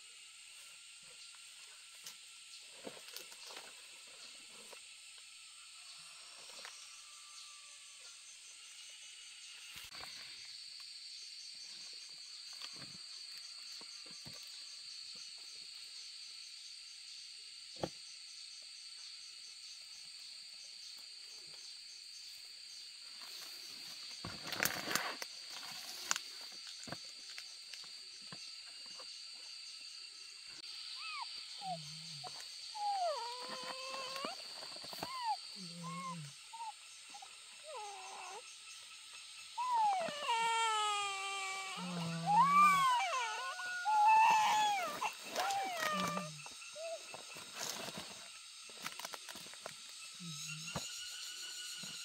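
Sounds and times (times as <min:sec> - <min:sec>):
high-pitched insect chorus: 0:00.0 - 0:52.0
rustling: 0:47.1 - 0:49.8.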